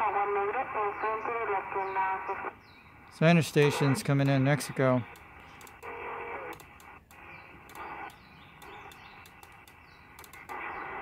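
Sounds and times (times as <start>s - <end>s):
faint radio signal: 0.0s - 11.0s
radio band noise from speaker: 0.0s - 11.0s
channel selector clicks: 5.1s - 5.9s, 6.5s - 10.6s.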